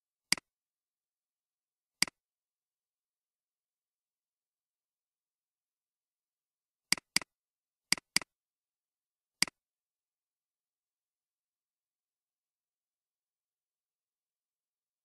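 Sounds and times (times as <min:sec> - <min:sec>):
computer mouse clicking: 0:06.9 - 0:07.3, 0:07.9 - 0:08.3.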